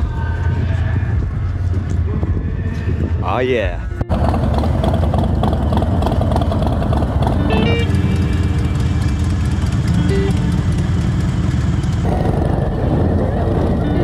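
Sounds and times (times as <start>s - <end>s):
motorcycle engine running: 4.0s - 14.0s.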